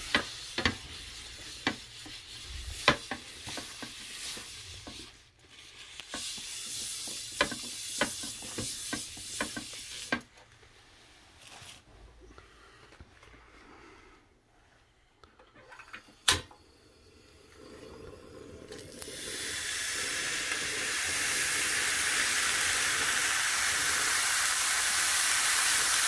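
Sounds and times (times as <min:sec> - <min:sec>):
meat sizzling on a hot pan: 0:00.0 - 0:10.2, 0:18.7 - 0:26.0.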